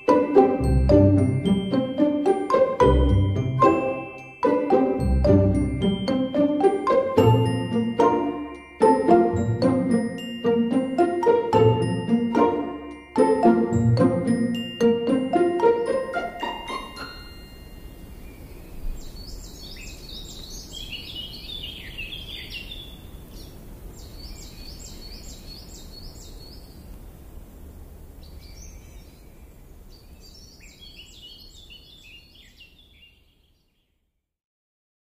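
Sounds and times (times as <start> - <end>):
low background noise: 0.0 - 34.1
birds chirping: 11.7 - 27.0.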